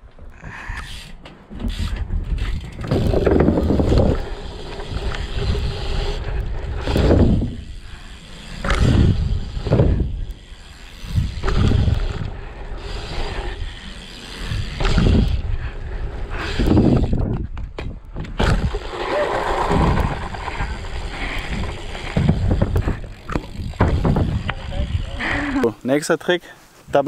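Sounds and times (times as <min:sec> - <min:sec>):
tyres rolling on dirt: 0:01.3 - 0:07.7, 0:16.5 - 0:26.1
wind rushing across microphone: 0:01.5 - 0:08.0, 0:08.6 - 0:10.3, 0:10.9 - 0:25.2.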